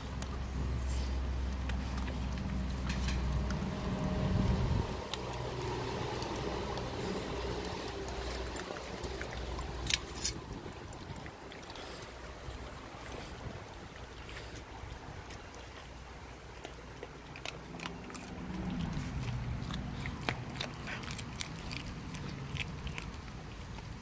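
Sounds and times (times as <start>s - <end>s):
puppies chewing and crunching: 0.0s - 24.0s
low rumble: 0.6s - 8.6s.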